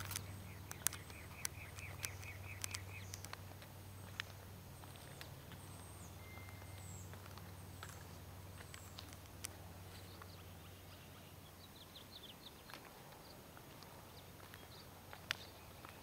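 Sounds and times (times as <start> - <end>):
light clicks: 0.0 - 4.4
faint low hum: 0.0 - 16.0
small birds chirping: 0.0 - 16.0.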